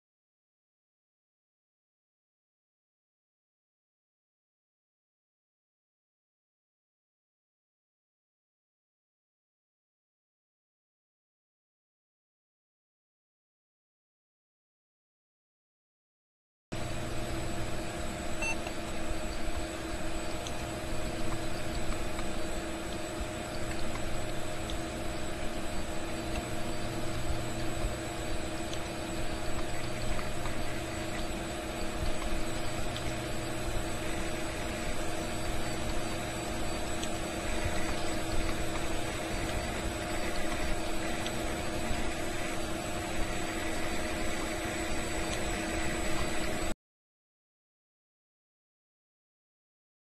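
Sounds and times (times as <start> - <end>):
droning hum: 16.8 - 46.7.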